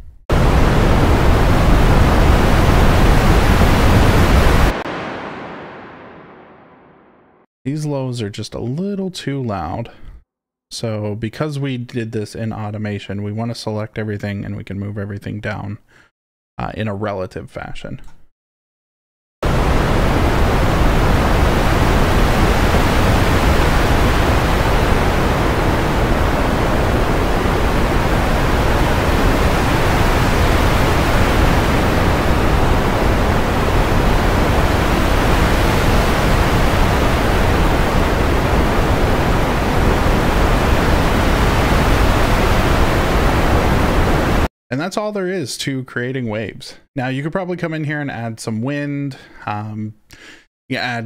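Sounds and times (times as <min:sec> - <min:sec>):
synthesized ocean waves: 0:00.3 - 0:07.5, 0:19.4 - 0:44.5.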